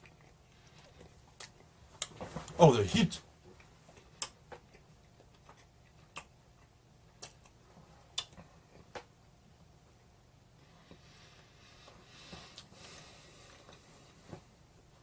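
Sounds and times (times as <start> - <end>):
mouth smacks from chewing: 3.5 - 9.1.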